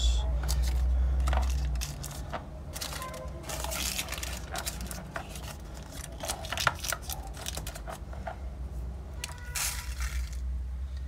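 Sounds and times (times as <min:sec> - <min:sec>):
parchment paper crinkling: 0:00.4 - 0:08.4, 0:09.2 - 0:10.5.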